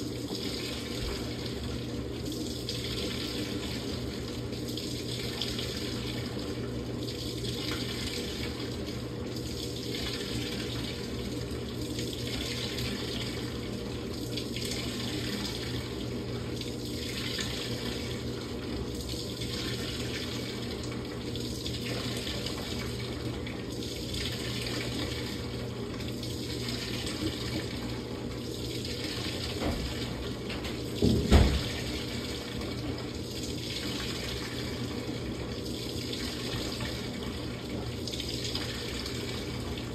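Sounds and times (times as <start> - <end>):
low machine hum: 0.0 - 39.9
water rushing into washing machine: 0.0 - 39.9.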